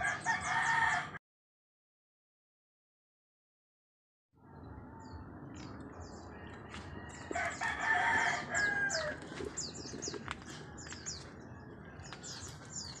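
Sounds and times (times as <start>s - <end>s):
rooster crowing: 0.0s - 1.2s, 6.4s - 9.2s
small birds chirping: 4.6s - 13.0s.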